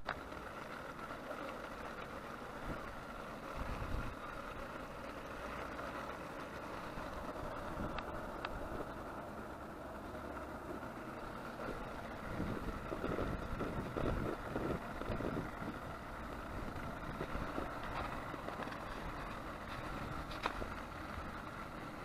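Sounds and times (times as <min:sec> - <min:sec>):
broth simmering: 0:00.0 - 0:22.0
wind rumble on microphone: 0:03.5 - 0:04.2, 0:11.6 - 0:20.8.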